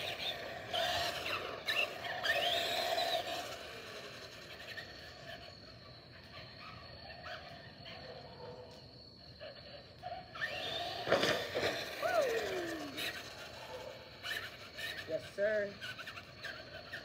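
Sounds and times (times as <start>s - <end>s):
toy car motor whine: 0.0s - 8.8s, 9.4s - 17.0s
car knocking off ramp: 10.9s - 12.1s.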